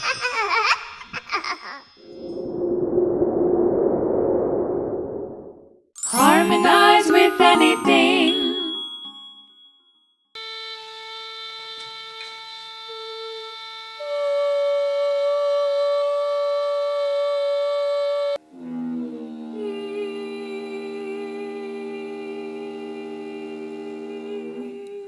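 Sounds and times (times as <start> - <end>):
woman singing sustained note: 6.0 - 8.8, 18.7 - 25.0
whistling kettle tone: 11.8 - 18.4.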